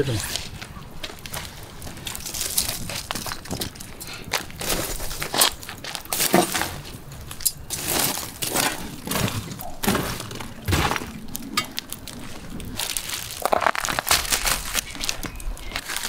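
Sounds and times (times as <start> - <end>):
charcoal clinking and crunching: 0.1 - 16.0.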